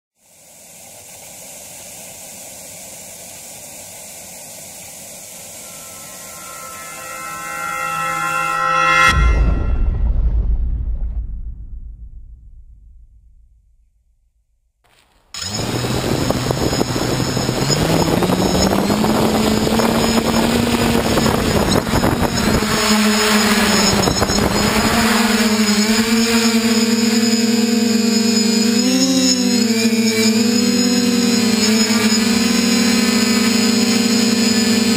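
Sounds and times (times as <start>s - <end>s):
static white noise hiss: 0.2s - 6.8s
propellers rushing air: 0.2s - 8.8s, 15.4s - 34.9s
drone motors whining: 1.2s - 9.0s, 15.4s - 34.9s.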